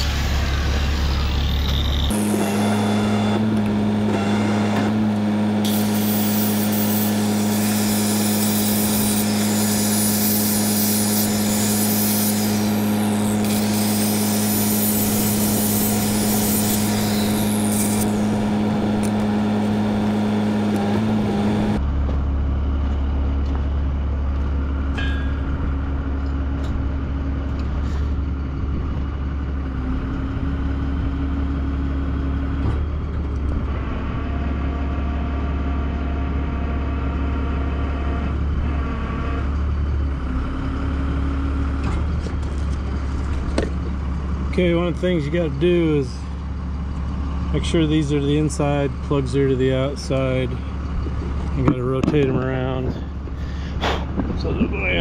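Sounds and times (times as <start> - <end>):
electric grinder on steel: 0.0 - 21.8
crane engine droning: 0.0 - 55.0
engine hum: 0.0 - 55.0.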